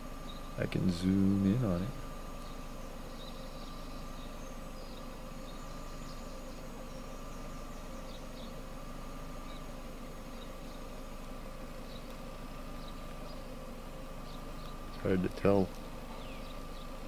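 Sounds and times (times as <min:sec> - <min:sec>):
faint constant hum: 0:00.0 - 0:17.0.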